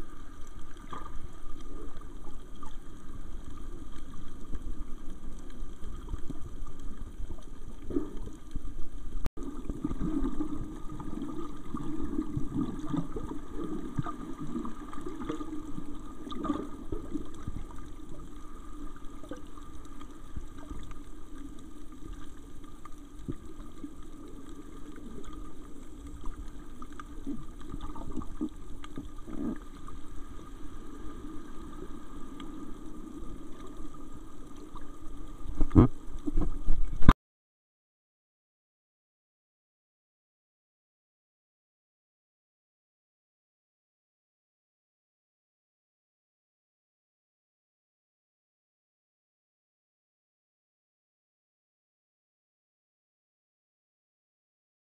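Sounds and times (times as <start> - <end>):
underwater rush and gurgle: 0.0 - 37.1
faint clicks: 14.9 - 30.2.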